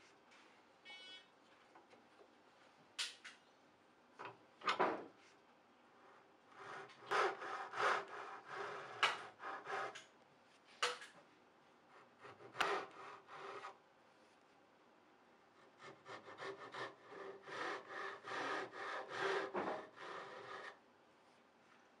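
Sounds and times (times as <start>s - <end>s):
hand saw rasping through wood: 6.6s - 10.0s, 12.1s - 13.7s, 15.7s - 20.8s.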